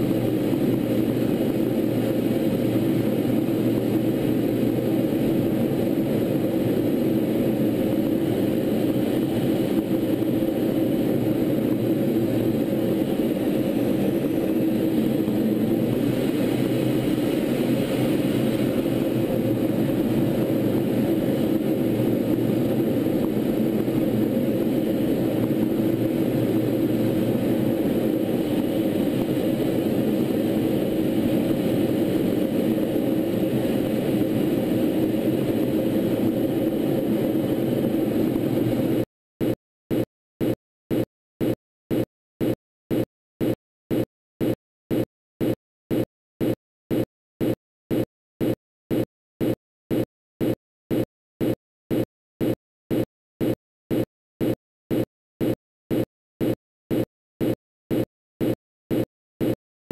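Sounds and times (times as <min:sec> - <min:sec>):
rushing air: 0:00.0 - 0:39.0
low hum: 0:00.0 - 0:39.1
jet engine drone in flight: 0:00.0 - 0:59.6.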